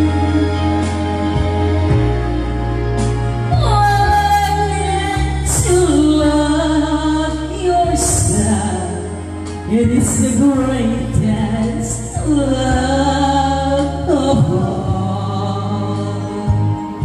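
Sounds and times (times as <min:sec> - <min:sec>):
backing music: 0:00.0 - 0:17.0
woman singing into microphone: 0:00.0 - 0:17.0.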